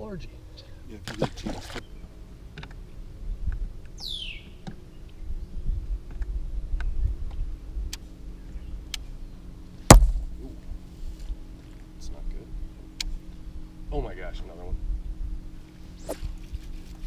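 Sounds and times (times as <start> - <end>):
wind rumble on microphone: 3.1 - 8.9, 14.3 - 17.0.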